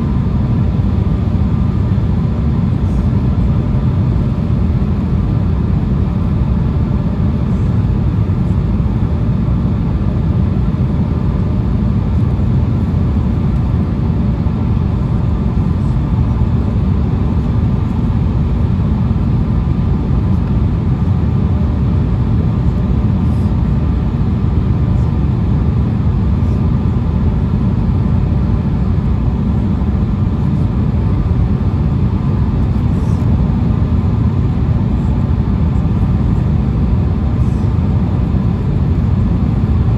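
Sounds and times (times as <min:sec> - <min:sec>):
airliner cabin rumble: 0:00.0 - 0:39.9
faint steady hum: 0:00.0 - 0:39.9.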